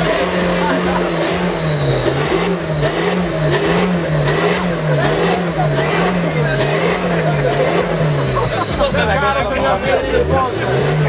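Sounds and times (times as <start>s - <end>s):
diesel engine revving: 0.0s - 11.0s.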